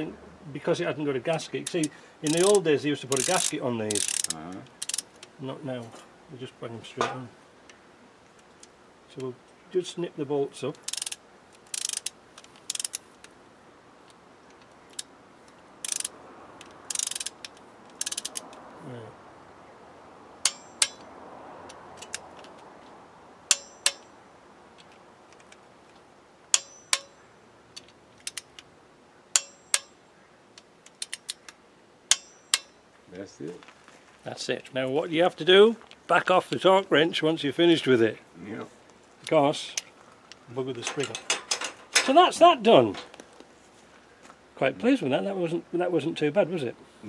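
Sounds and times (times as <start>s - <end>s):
torque wrench ratcheting: 1.7s - 5.2s, 10.8s - 13.0s, 15.8s - 18.5s.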